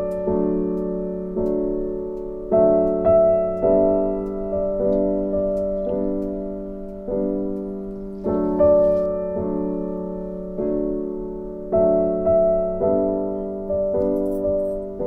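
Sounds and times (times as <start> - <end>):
slow soft piano chords: 0.0 - 15.0.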